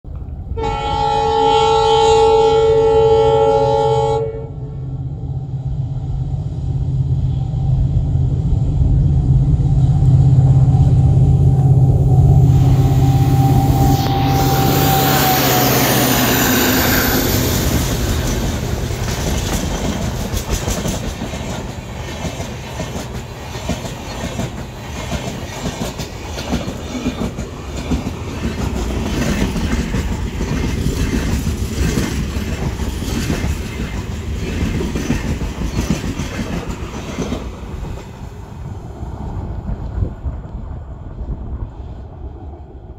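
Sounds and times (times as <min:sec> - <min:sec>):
locomotive multi-tone horn: 0:00.6 - 0:04.9, 0:10.9 - 0:17.6
diesel engine droning: 0:03.2 - 0:19.1
train wheels clickety-clack: 0:14.9 - 0:38.3.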